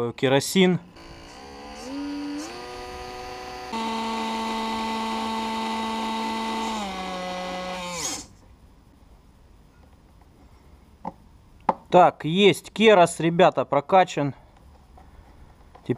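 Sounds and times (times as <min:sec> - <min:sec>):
small electric pump motor whining: 0:00.9 - 0:08.4.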